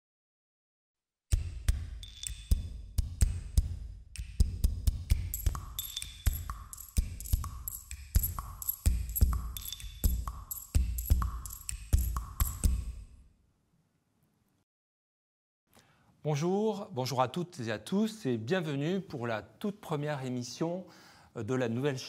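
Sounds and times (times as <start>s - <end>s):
intro music beat with deep bass: 1.3s - 13.1s.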